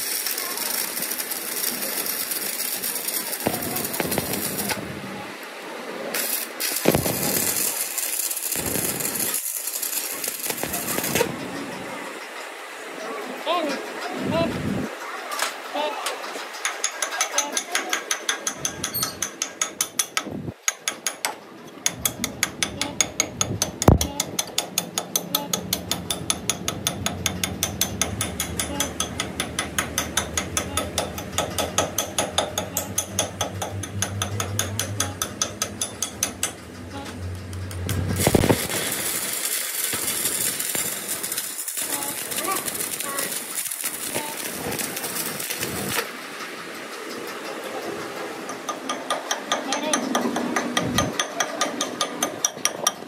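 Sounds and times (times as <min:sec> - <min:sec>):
welding arc crackling hiss: 0:00.0 - 0:11.6, 0:37.1 - 0:47.2
lathe mechanical clicking: 0:23.6 - 0:36.8.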